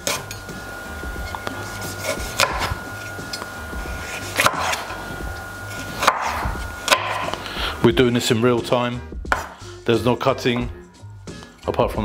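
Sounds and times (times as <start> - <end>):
utensil scraping wooden board: 1.2 - 3.2, 3.8 - 7.8
sharp knocks on wooden board: 9.3 - 9.6.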